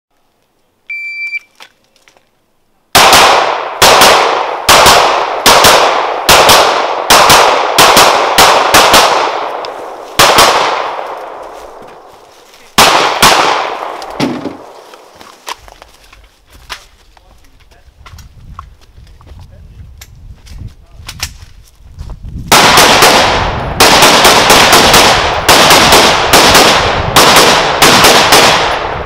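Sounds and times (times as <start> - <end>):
shot-timer beep: 0.9 - 1.5
handgun shots: 3.0 - 9.4, 10.2 - 11.0, 12.8 - 14.6.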